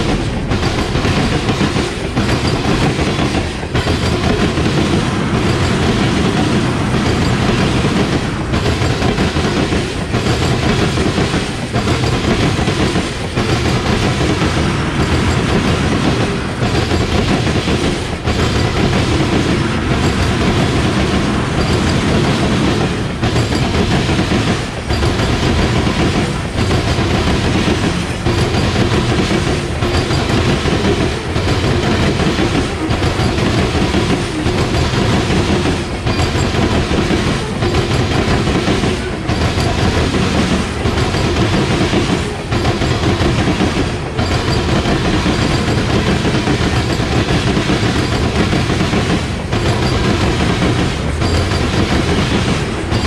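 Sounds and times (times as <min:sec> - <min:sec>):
freight train cars rolling past: 0:00.0 - 0:53.0
wheels clattering over rail joints: 0:00.0 - 0:53.0.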